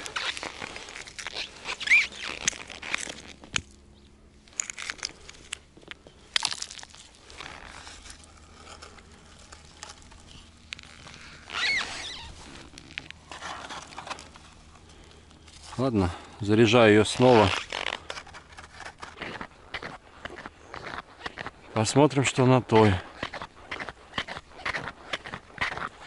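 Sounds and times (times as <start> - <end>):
broken ice crunching: 0.0 - 3.7, 4.4 - 26.0
short squeak: 1.3 - 2.9, 11.5 - 12.4.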